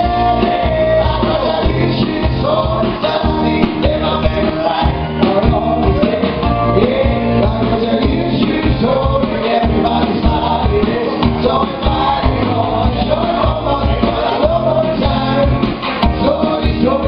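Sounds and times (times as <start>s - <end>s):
backing track with steady beat: 0.0s - 17.0s
man singing into microphone: 0.0s - 17.0s.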